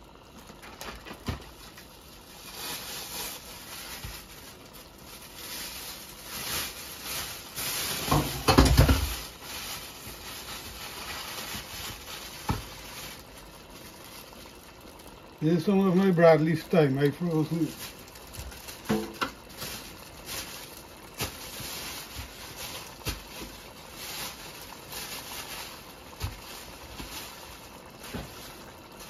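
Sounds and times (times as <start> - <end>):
stew bubbling and popping: 6.9 - 29.0.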